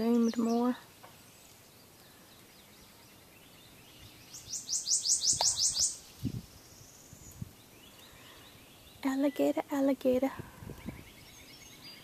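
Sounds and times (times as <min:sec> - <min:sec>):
quiet swamp background: 0:00.0 - 0:12.0
songbird singing high notes: 0:02.6 - 0:09.6.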